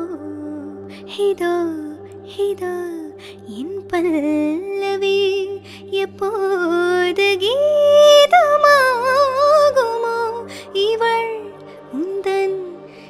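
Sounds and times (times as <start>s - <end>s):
woman singing slow melody: 0.0s - 13.0s.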